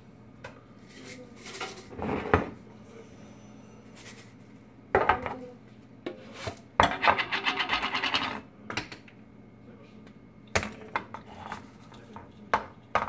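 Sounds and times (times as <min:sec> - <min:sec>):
tin knocking on countertop: 0:12.2 - 0:13.0.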